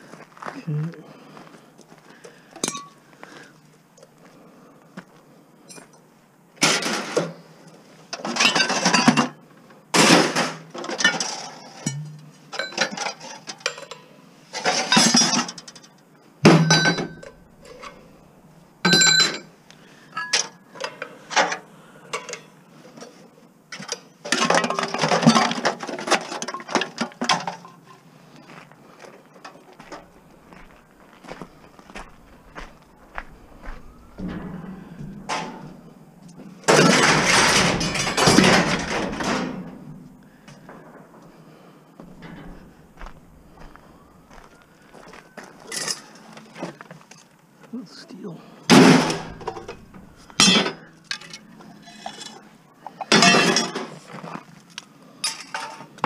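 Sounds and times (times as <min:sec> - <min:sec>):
scrap metal clattering into bin: 0:08.2 - 0:09.3, 0:10.0 - 0:15.8, 0:16.5 - 0:18.0, 0:36.7 - 0:40.0, 0:48.7 - 0:52.4, 0:53.0 - 0:54.0.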